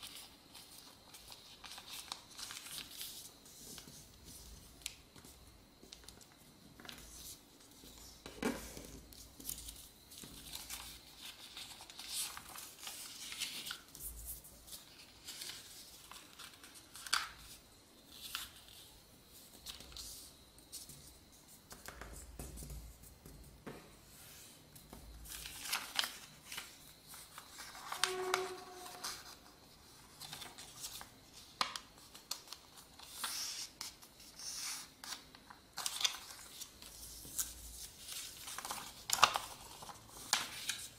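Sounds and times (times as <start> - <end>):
paper being folded: 0.0 - 5.0, 9.0 - 22.2, 24.1 - 40.9.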